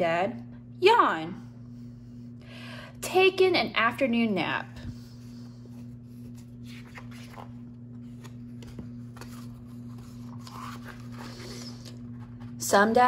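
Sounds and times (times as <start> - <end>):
steady low hum: 0.0 - 13.0
paper pages rustling: 5.6 - 12.6.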